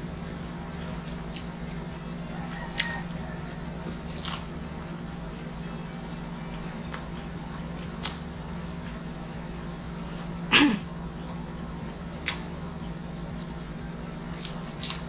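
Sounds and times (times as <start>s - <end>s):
steady low hum: 0.0s - 15.0s
close chewing and biting food: 0.8s - 1.8s, 2.4s - 4.7s, 6.5s - 9.1s, 11.2s - 15.0s.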